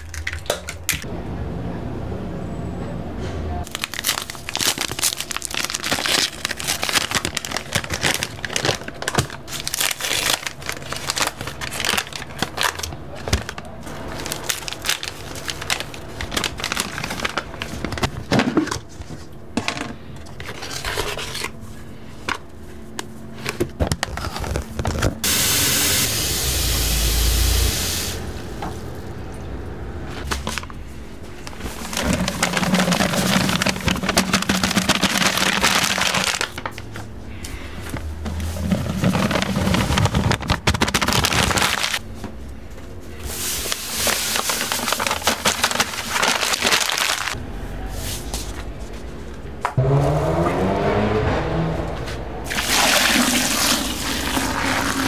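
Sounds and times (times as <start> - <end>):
food packaging crinkling and tearing: 3.6 - 19.2, 20.3 - 21.8, 23.4 - 25.2, 31.4 - 37.1, 38.3 - 42.0, 43.2 - 47.4
containers scraping and clicking: 5.6 - 25.2, 31.4 - 41.9.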